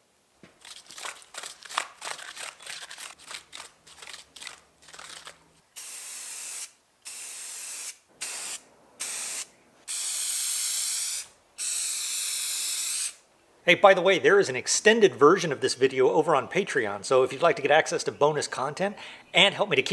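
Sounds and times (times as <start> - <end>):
paint brush scrubbing: 0.6 - 5.4
aerosol spray can hissing: 5.8 - 13.2.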